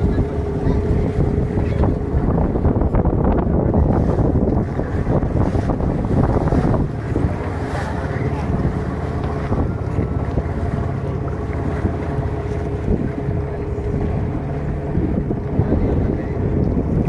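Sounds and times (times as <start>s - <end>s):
motor droning: 0.0s - 17.0s
water splashing against hull: 0.0s - 17.0s
wind buffeting microphone: 0.0s - 17.0s.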